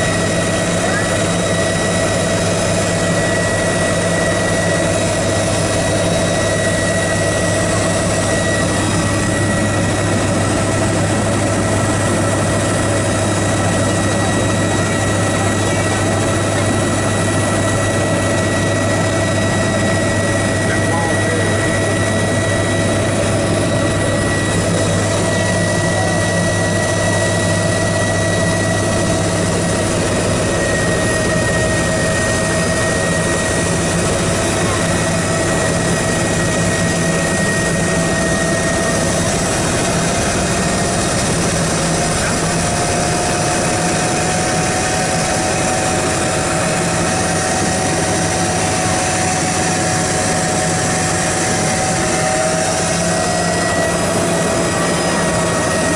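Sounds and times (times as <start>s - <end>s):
helicopter engine drone: 0.0s - 55.9s
thin engine whine: 0.0s - 55.9s.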